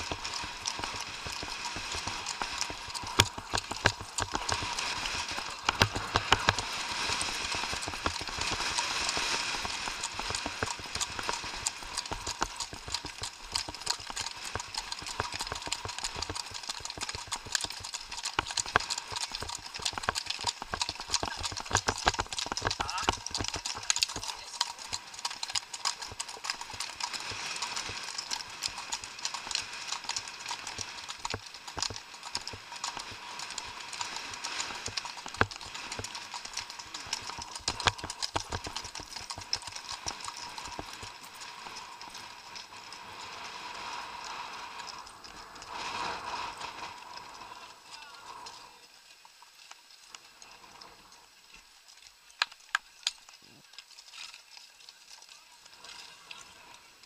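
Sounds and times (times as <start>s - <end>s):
horse hoofbeats on gravel: 0.0s - 43.0s
steady hiss: 26.9s - 57.0s.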